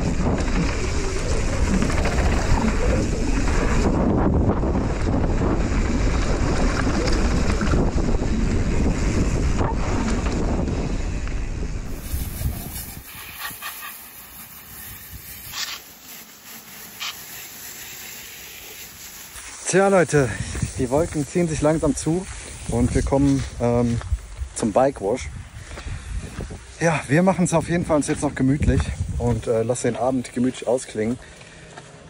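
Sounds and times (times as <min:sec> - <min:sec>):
wind noise on camera: 0:00.0 - 0:13.7, 0:14.7 - 0:15.8, 0:19.9 - 0:29.7
bike tyres rumbling over dirt: 0:00.0 - 0:31.7.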